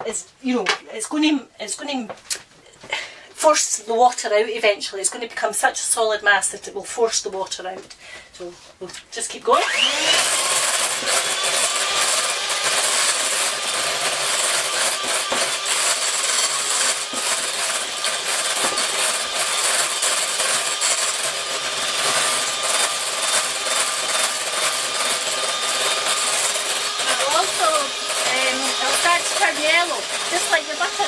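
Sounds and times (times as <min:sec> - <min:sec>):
electric hand mixer churning cream: 0:09.5 - 0:31.0.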